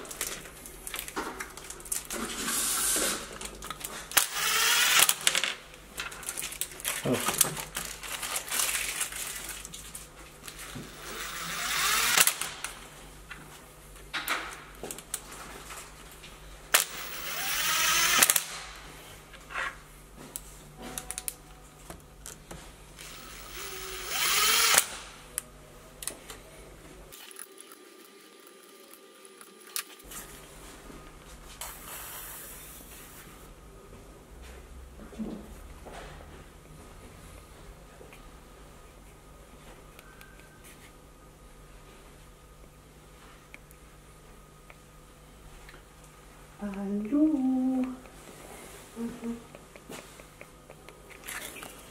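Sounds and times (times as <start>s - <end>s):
cordless driver driving screws: 4.1s - 5.2s, 11.0s - 12.5s, 16.8s - 18.6s, 23.0s - 25.0s.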